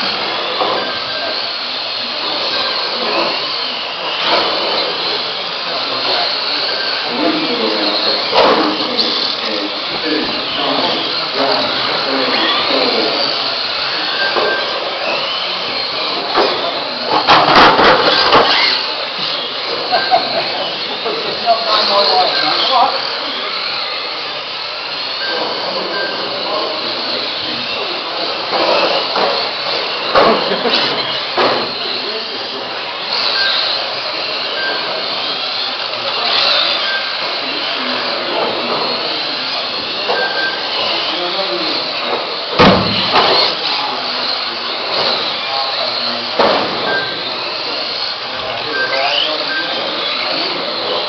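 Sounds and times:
rc car motors whining: 0.0 - 51.0.

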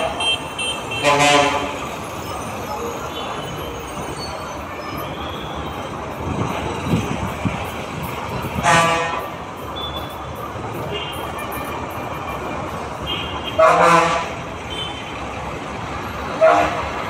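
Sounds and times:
vehicle engines running: 0.0 - 17.0
vehicle horn blast: 0.2 - 1.8, 8.6 - 9.2, 13.1 - 15.0, 16.4 - 16.8.

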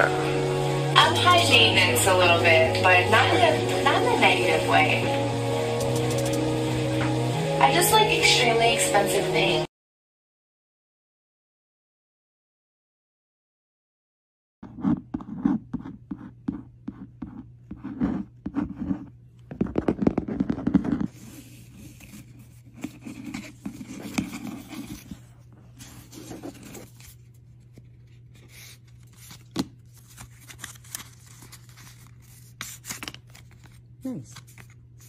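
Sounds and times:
packaging crinkling and rustling: 21.5 - 34.8.

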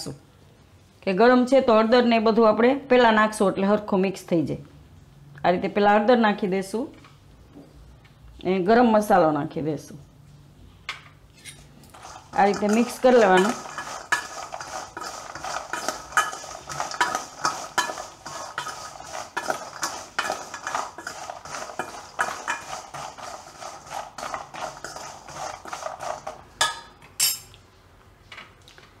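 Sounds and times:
nuts rattling in a steel bowl: 11.9 - 26.5.

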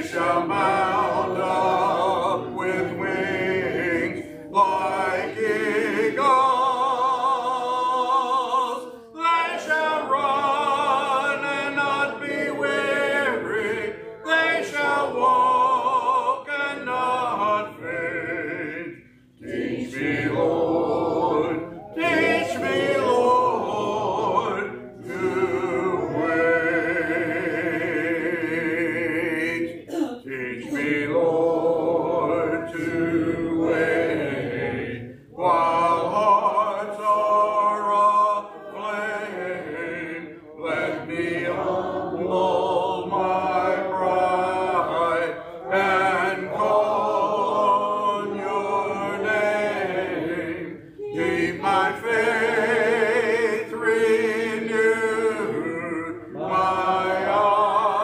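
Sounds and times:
man leading singing: 0.0 - 18.9, 19.8 - 34.8
congregation singing a hymn: 0.0 - 58.0.

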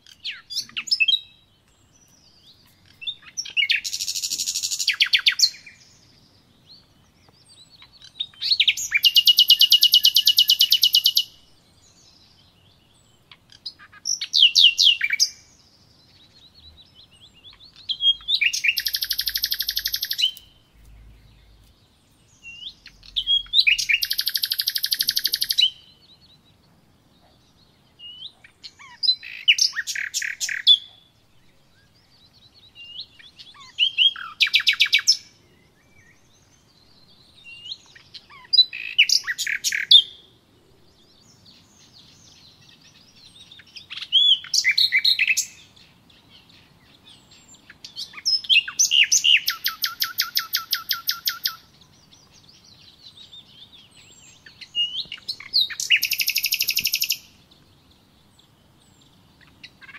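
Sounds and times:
songbird trilling and chirping: 0.0 - 59.9.

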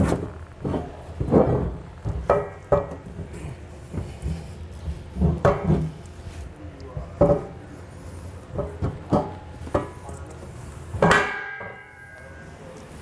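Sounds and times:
ringing metal clang: 11.0 - 12.6.

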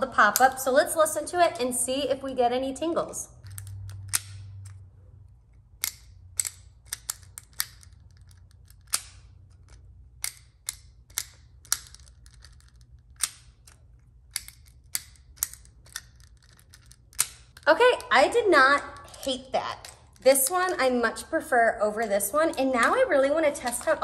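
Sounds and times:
plastic toy clicking and popping: 5.8 - 18.1.

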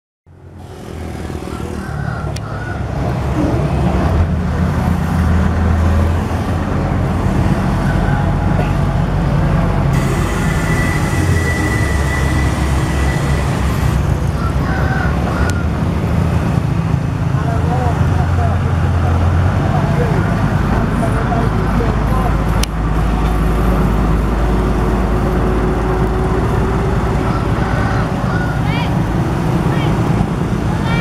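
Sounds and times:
road roller diesel engine rumble: 0.3 - 31.0
thin high tone: 9.9 - 14.0.

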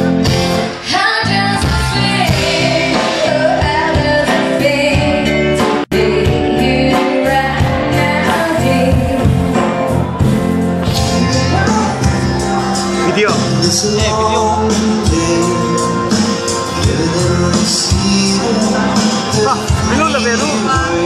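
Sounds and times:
drums: 0.0 - 21.0
electric guitar: 0.0 - 21.0
keyboard: 0.0 - 21.0
woman singing into a microphone: 0.8 - 9.4.

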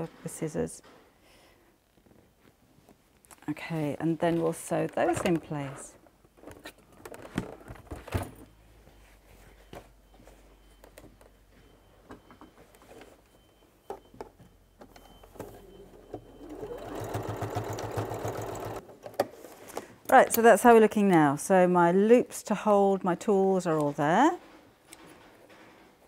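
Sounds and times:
sewing machine stitching: 16.2 - 18.8.

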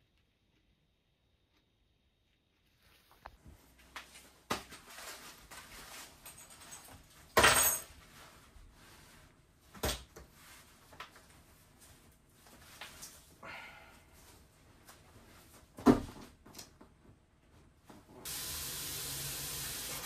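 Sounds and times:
clothing rustling: 2.6 - 13.4.

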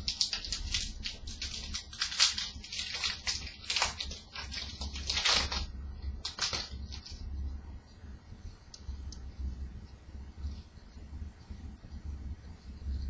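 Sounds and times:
foil wrapper tearing and crinkling: 0.0 - 7.2.

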